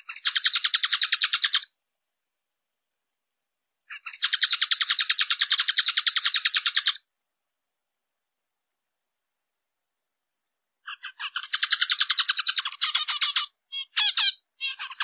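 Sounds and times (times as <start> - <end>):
finch chirping rapidly: 0.0 - 1.7, 3.9 - 7.0, 10.9 - 15.0.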